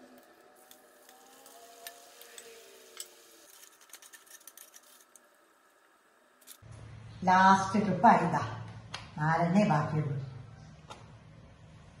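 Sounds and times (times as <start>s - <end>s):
food crackling in frying oil: 0.0s - 6.6s.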